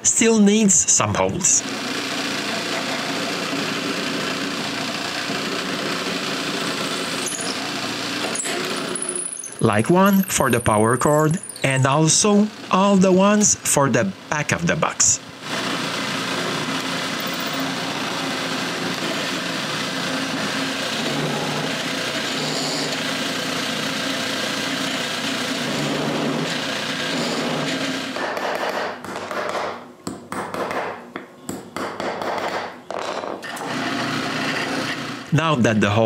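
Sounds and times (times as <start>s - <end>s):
drill bit cutting wood: 1.6s - 14.4s, 15.4s - 28.2s, 33.4s - 35.3s
drill press motor humming: 1.6s - 14.4s, 15.2s - 28.3s, 33.4s - 35.4s.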